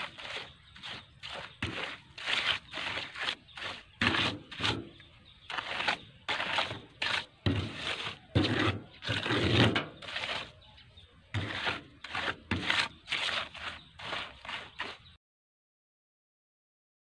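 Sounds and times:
trowel scraping wet concrete: 0:00.0 - 0:15.2.

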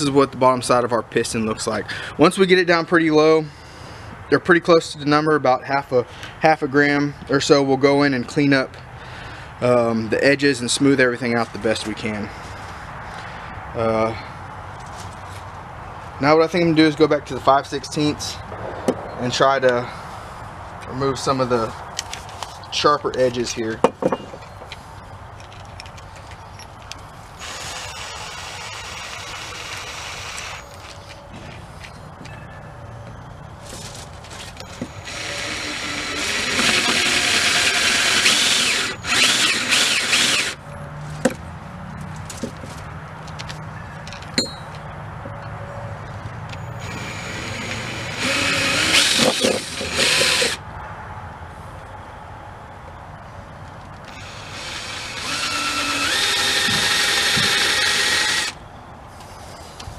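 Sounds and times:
cordless drill whirring: 0:27.4 - 0:30.8, 0:34.7 - 0:40.6, 0:46.8 - 0:50.6, 0:54.1 - 0:58.6.

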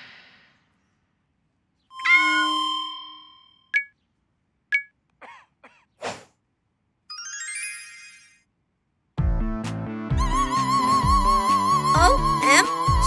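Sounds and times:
bell-like ding: 0:02.0 - 0:03.9
twinkling magic sparkle chime: 0:07.1 - 0:08.4.

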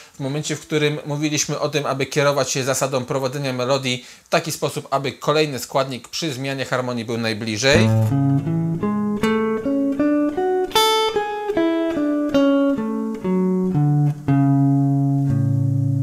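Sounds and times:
clean electric guitar melody: 0:07.7 - 0:16.0.

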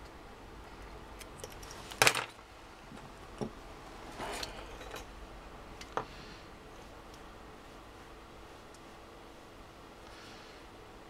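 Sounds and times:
small parts rustling: 0:01.2 - 0:02.4.

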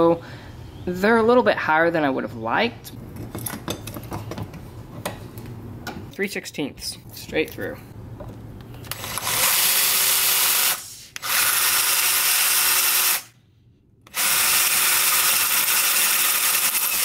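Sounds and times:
cordless drill drilling cast iron: 0:08.9 - 0:13.3, 0:14.1 - 0:17.0.

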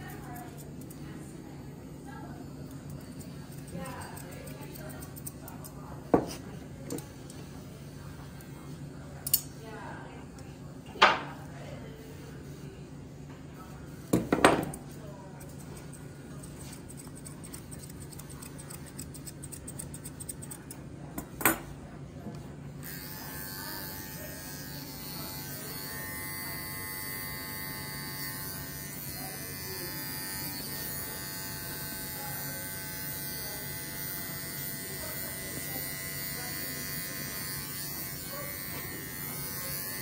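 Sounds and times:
scissors snipping fur: 0:00.0 - 0:01.3, 0:02.6 - 0:07.4, 0:09.2 - 0:09.6, 0:14.1 - 0:21.2
electric clipper running: 0:22.8 - 0:40.0.

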